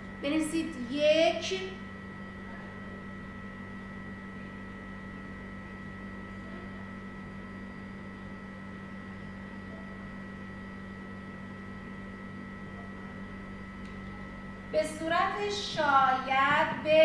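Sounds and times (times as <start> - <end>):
electrical hum with hiss: 0.0 - 17.0.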